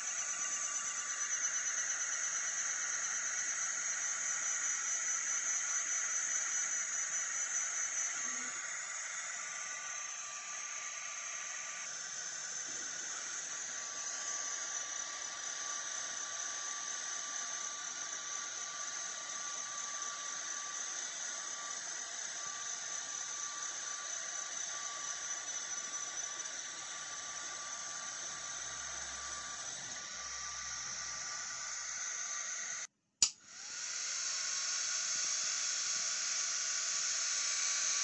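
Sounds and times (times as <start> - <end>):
faint thin whine: 7.5 - 8.7.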